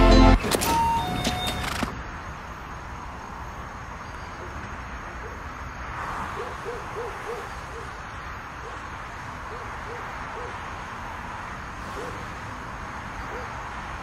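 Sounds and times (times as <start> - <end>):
music: 0.0 - 1.0.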